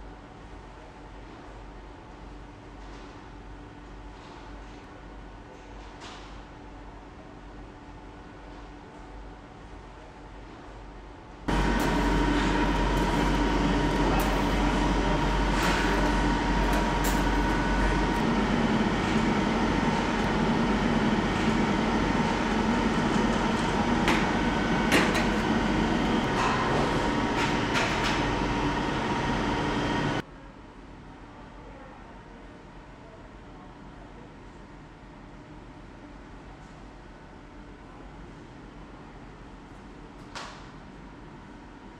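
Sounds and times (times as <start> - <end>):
machinery humming: 11.5 - 30.2.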